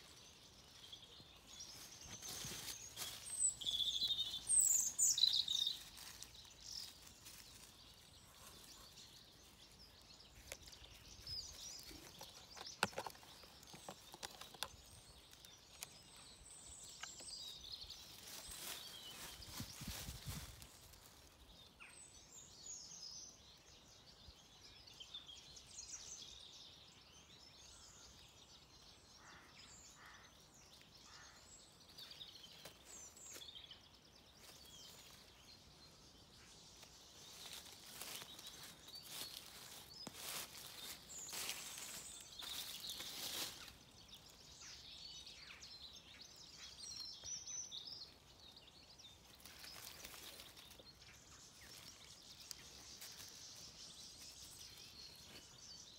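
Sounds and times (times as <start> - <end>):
small birds chirping: 0.0 - 55.9
rustling: 1.6 - 9.2, 37.2 - 43.8.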